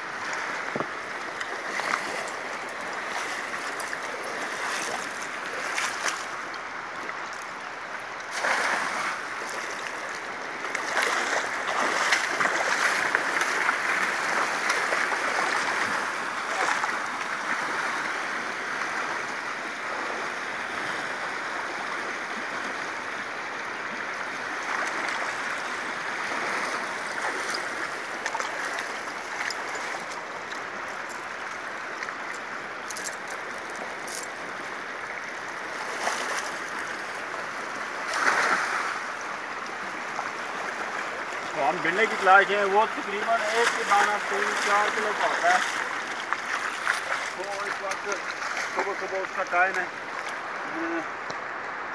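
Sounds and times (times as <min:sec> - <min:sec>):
river rushing over rapids: 0:00.0 - 0:51.9
splashes from wading: 0:00.3 - 0:06.5, 0:08.2 - 0:18.1, 0:38.0 - 0:39.2, 0:40.1 - 0:50.9
cast net dragging through water: 0:08.3 - 0:09.9, 0:10.7 - 0:16.9, 0:41.6 - 0:49.2.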